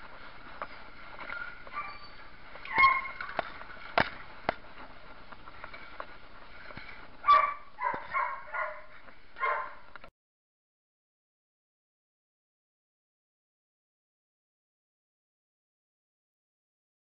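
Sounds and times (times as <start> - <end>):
dog barking: 1.7 - 2.1, 2.7 - 3.2, 7.2 - 9.8.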